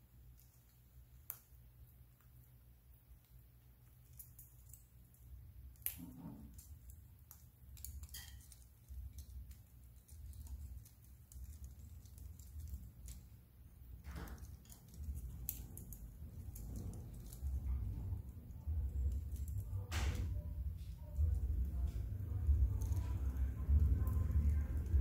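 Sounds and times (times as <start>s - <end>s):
steady low hum: 0.0s - 25.0s
beaks and claws clicking on perches: 0.3s - 2.5s, 3.1s - 25.0s.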